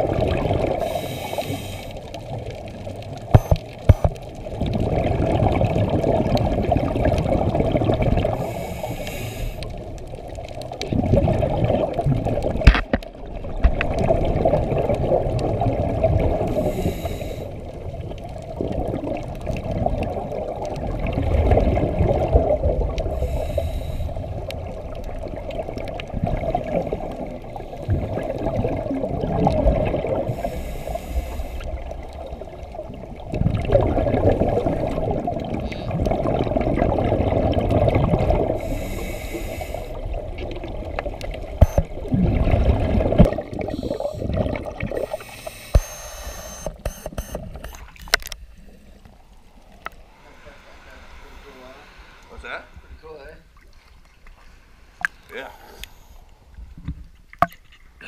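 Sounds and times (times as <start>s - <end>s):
exhaled bubbles rushing: 0.0s - 8.5s, 9.8s - 16.9s, 17.5s - 23.4s, 24.2s - 30.5s, 31.7s - 38.9s, 39.9s - 46.0s
diver breathing through regulator: 0.8s - 2.0s, 8.3s - 9.8s, 16.5s - 17.6s, 23.1s - 24.3s, 30.3s - 31.7s, 38.6s - 40.0s, 43.6s - 47.3s, 49.9s - 53.6s, 54.3s - 56.6s.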